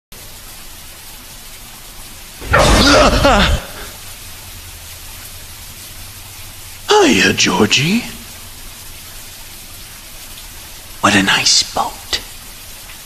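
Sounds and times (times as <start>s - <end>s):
steady hiss: 0.2s - 13.0s
wordless vocal sound: 2.4s - 4.0s.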